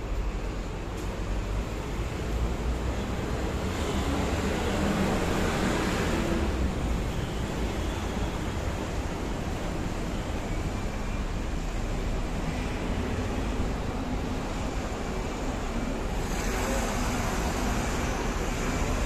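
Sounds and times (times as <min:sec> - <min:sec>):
city road traffic: 0:00.0 - 0:19.0.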